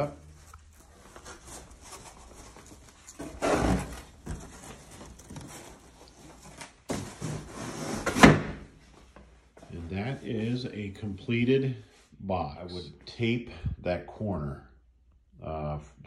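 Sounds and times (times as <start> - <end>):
cardboard rustling and scraping: 0.3 - 8.4.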